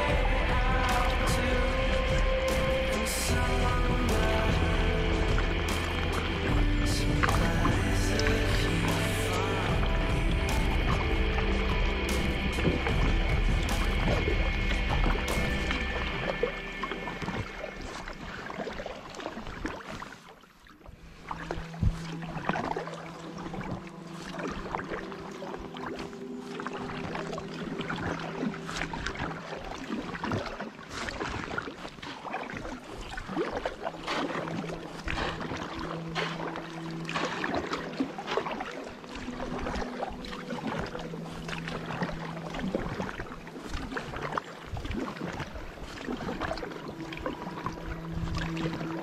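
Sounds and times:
low hum of steady notes: 0:00.0 - 0:19.3, 0:21.0 - 0:30.2, 0:33.4 - 0:49.0
paddle dipping into water: 0:00.0 - 0:49.0
splashes and drips from paddle: 0:00.0 - 0:49.0.

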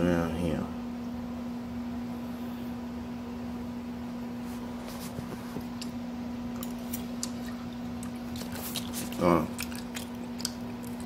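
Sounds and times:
steady low hum: 0:00.0 - 0:11.0
fork clicks and mouth smacks: 0:06.6 - 0:11.0.

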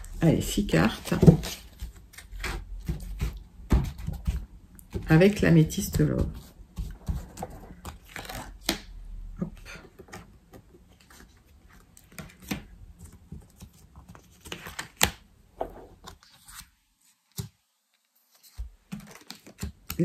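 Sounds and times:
cards shuffling with light clicks: 0:16.0 - 0:20.0.

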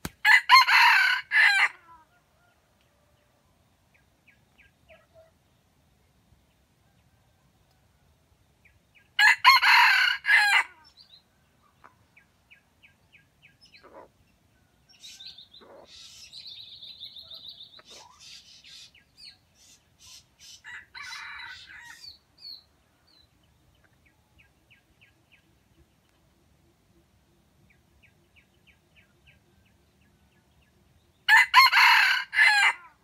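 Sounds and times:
rooster crowing: 0:00.2 - 0:02.6, 0:09.2 - 0:10.8, 0:20.6 - 0:22.1, 0:31.3 - 0:32.9
small birds chirping: 0:10.8 - 0:20.8.

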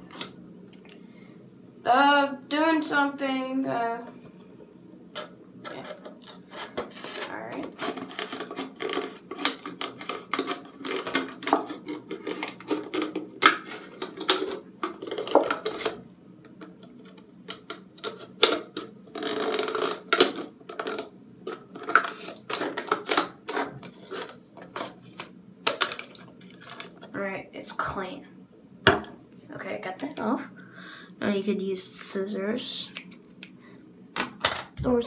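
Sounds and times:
scissors cutting plastic bottle: 0:05.8 - 0:16.0.

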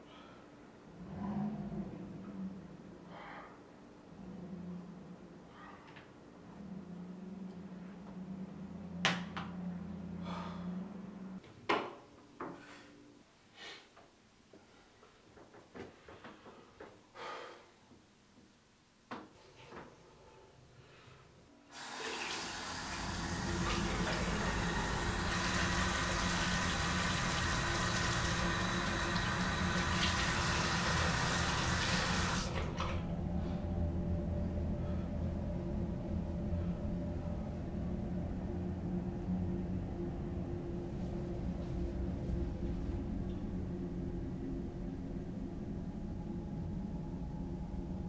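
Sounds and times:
low hum: 0:00.0 - 0:11.4, 0:22.6 - 0:48.0
faucet running: 0:21.7 - 0:33.0.

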